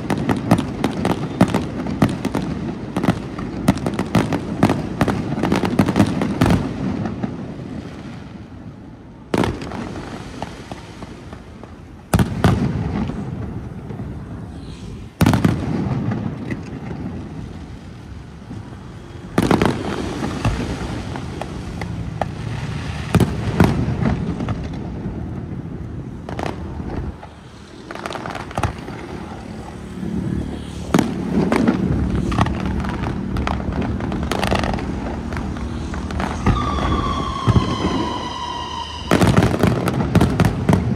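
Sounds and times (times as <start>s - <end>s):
firework crackling: 0.0s - 40.9s
firework booms echoing: 15.0s - 17.3s, 30.9s - 40.9s.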